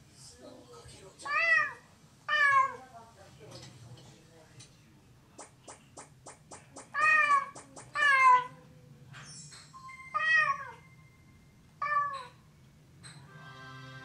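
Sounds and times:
cat meowing: 0:01.3 - 0:02.8, 0:06.9 - 0:08.6, 0:10.1 - 0:10.9, 0:11.8 - 0:12.4.

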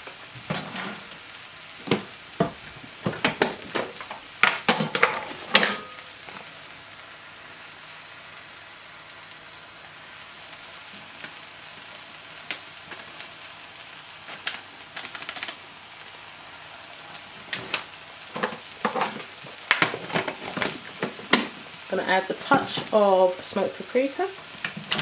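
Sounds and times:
mushrooms and onions sizzling: 0:00.0 - 0:25.0
packet taps and rustles: 0:14.3 - 0:15.6, 0:17.6 - 0:21.6.

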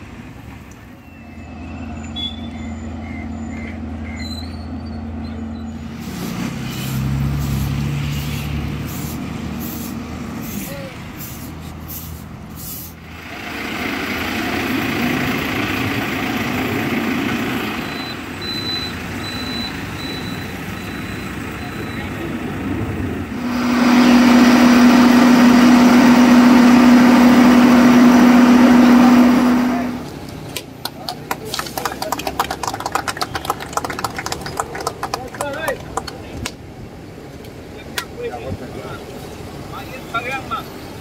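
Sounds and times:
diesel engines running: 0:00.0 - 0:41.0
reversing alarm beeping: 0:01.0 - 0:05.9, 0:17.8 - 0:22.2
short hissing sounds: 0:05.9 - 0:13.0.

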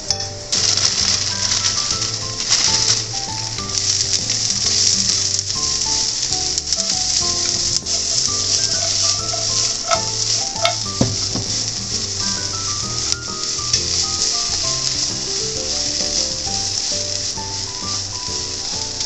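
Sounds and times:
vegetables sizzling in oil: 0:00.0 - 0:19.0
chopsticks knocking on pan: 0:06.8 - 0:13.1.

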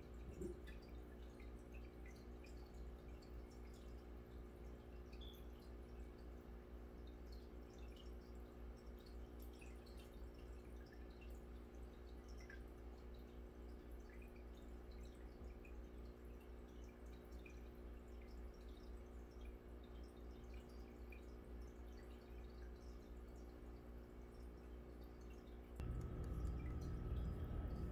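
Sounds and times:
faint pops and drips: 0:00.0 - 0:06.4, 0:07.0 - 0:27.9
aquarium air bubbles: 0:00.0 - 0:27.9
steady low hum: 0:25.8 - 0:27.9.

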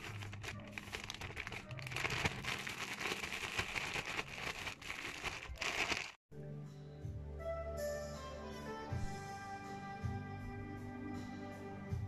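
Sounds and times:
food tumbling inside bag: 0:00.0 - 0:06.2
plastic bag crinkling: 0:00.0 - 0:06.2.

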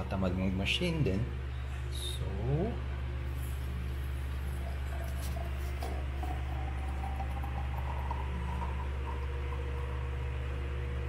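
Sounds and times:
low steady hum: 0:00.0 - 0:11.0
hot water pouring into glass: 0:04.6 - 0:11.0.

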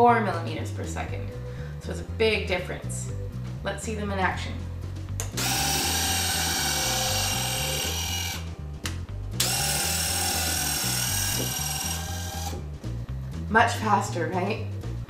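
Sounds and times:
background music: 0:00.0 - 0:15.0
small electric motors whining: 0:05.4 - 0:08.6, 0:09.4 - 0:12.7.

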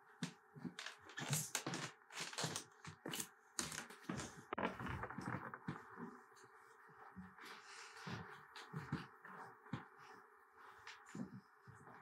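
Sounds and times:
footsteps on parquet floor: 0:08.0 - 0:12.0.

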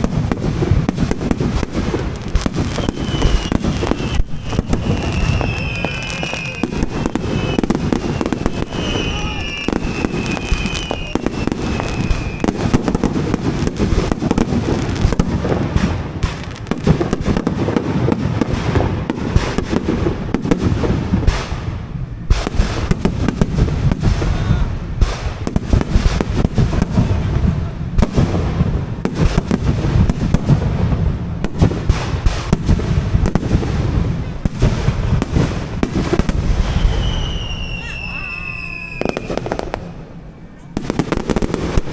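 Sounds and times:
fireworks bangs and crackles: 0:00.0 - 0:41.9
high whistle: 0:02.7 - 0:12.7, 0:36.6 - 0:39.4.

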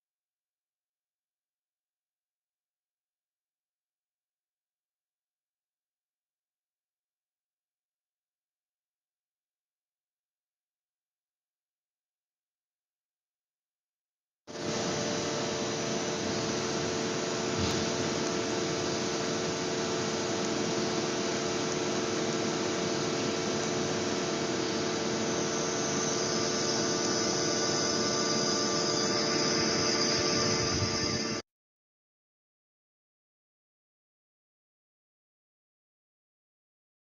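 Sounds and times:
machine hum and hiss: 0:14.5 - 0:31.4
steady machine tones: 0:14.5 - 0:31.4.

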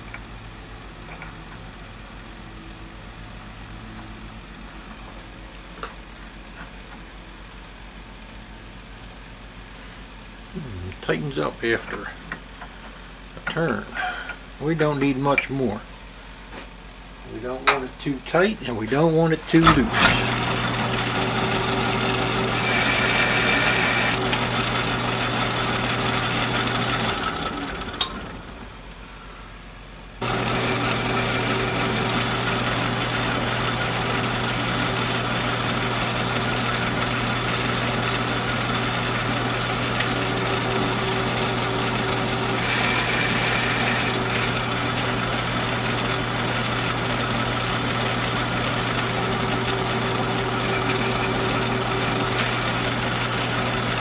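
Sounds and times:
metal lathe humming: 0:19.6 - 0:28.4, 0:30.2 - 0:54.0
high-pitched lathe whine: 0:19.9 - 0:28.1, 0:30.2 - 0:54.0.

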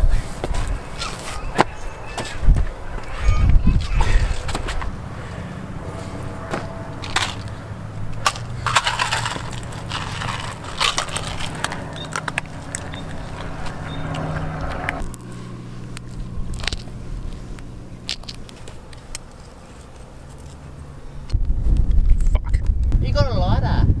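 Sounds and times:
crunching and crackling: 0:06.5 - 0:21.4
pill crushed against concrete: 0:07.0 - 0:13.5, 0:15.0 - 0:20.6.

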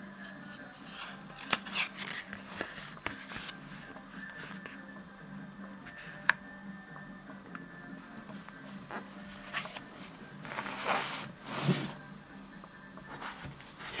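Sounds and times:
notebook rustling and scraping: 0:00.9 - 0:04.8, 0:08.9 - 0:12.0, 0:13.1 - 0:14.0.

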